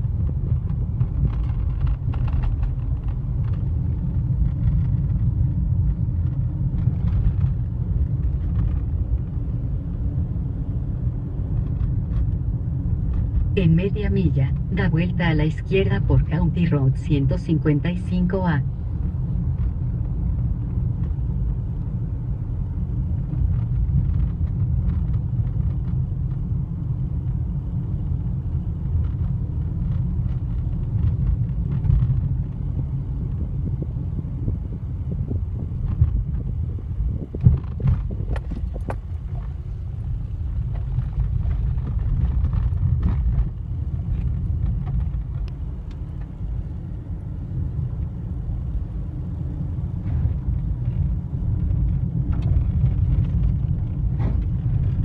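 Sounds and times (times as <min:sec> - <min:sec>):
clicks and knocks from rough road: 0:00.0 - 0:13.6, 0:22.9 - 0:48.3, 0:49.8 - 0:55.0
tyres and engine rumble: 0:00.0 - 0:55.0.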